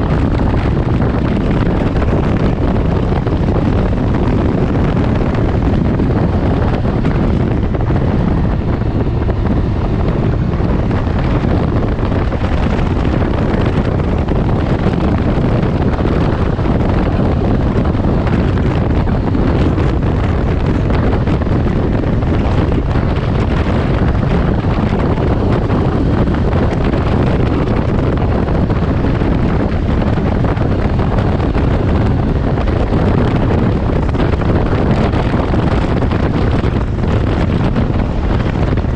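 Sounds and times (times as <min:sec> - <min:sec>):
engine and tyre noise: 0:00.0 - 0:38.9
wind rushing on microphone: 0:00.0 - 0:38.9.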